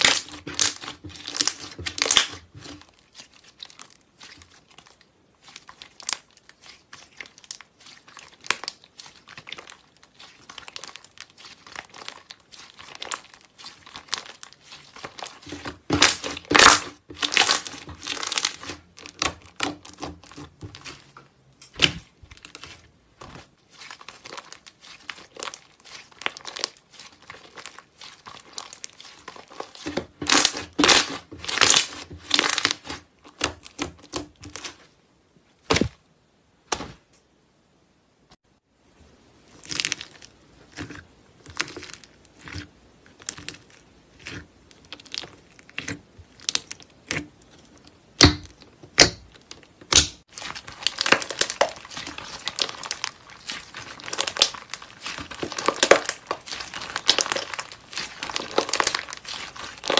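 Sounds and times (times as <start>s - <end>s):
slime crackling under fingers: 0.0s - 21.1s, 22.4s - 34.8s, 49.0s - 59.9s.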